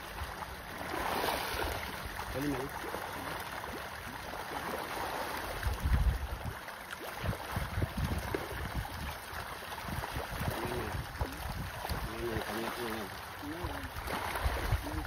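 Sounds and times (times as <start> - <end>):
water splashing from fish thrashing: 0.0 - 15.0
wind rumbling on microphone: 5.4 - 6.6, 7.2 - 15.0.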